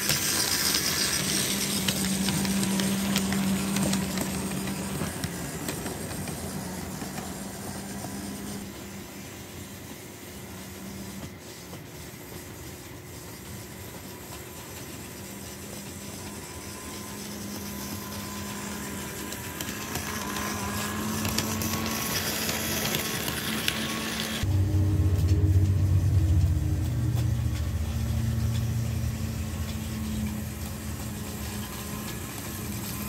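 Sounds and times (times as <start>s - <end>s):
wheels rattling over rails: 0.0s - 8.7s, 16.9s - 33.0s
model train motor hum: 0.0s - 33.0s.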